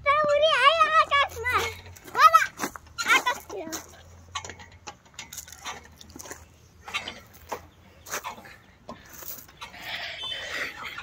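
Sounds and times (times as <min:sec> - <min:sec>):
metal pivot squeaking: 0:04.3 - 0:06.1.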